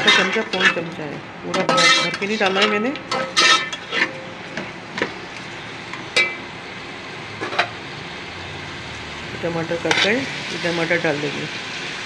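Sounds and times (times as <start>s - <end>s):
metal spoon scraping pot: 0.0s - 1.0s, 1.6s - 4.3s
oil sizzling: 0.0s - 12.0s.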